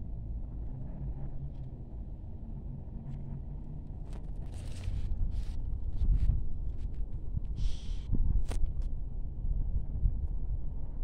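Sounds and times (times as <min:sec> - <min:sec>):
wind on microphone: 0:04.5 - 0:11.0.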